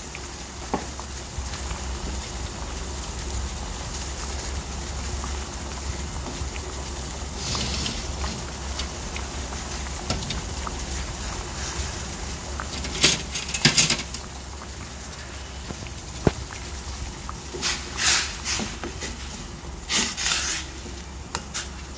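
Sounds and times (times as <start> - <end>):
pot boiling and bubbling: 0.0 - 21.9.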